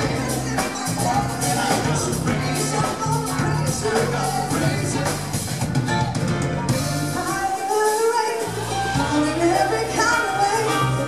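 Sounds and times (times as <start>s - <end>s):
electric bass guitar: 0.0s - 7.5s, 8.4s - 11.0s
drum kit: 0.0s - 11.0s
woman singing: 7.1s - 11.0s.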